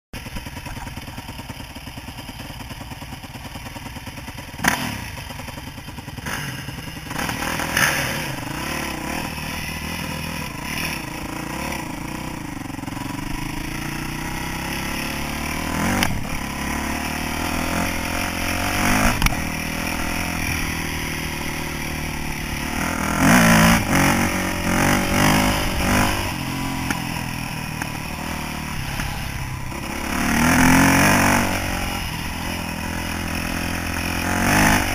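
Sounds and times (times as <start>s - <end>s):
dirt bike engine revving: 0.2s - 34.9s.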